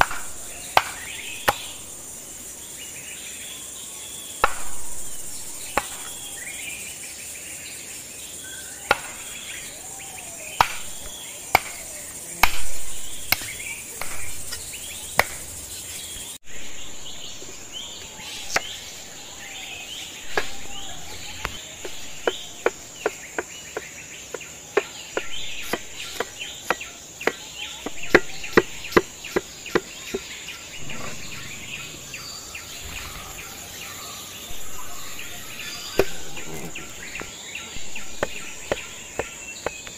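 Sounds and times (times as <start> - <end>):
cleaver chopping on wooden board: 0.0 - 1.8, 4.4 - 6.4, 8.8 - 9.6, 10.5 - 15.5, 18.5 - 18.8, 20.3 - 30.3, 34.5 - 39.9
birds chirping: 0.0 - 39.9
high insect buzz: 0.0 - 39.9.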